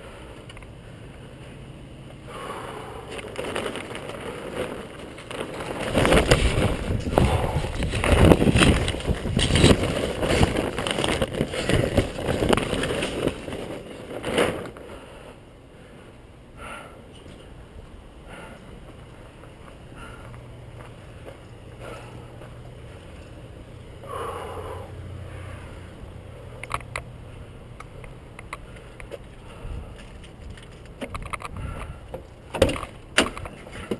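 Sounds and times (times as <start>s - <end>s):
plastic tarp crinkling and rustling: 3.1s - 15.0s.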